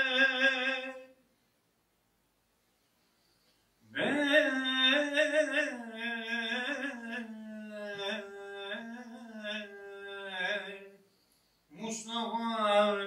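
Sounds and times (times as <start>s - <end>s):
person chanting unaccompanied: 0.0s - 1.2s, 3.9s - 11.0s, 11.7s - 13.0s.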